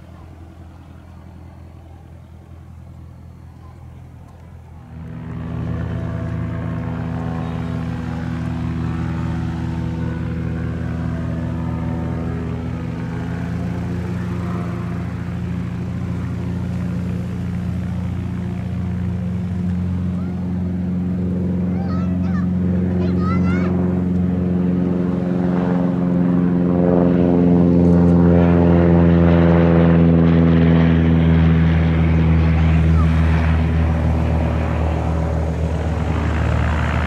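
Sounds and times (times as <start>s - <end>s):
propeller aircraft engine drone: 0.0s - 37.0s.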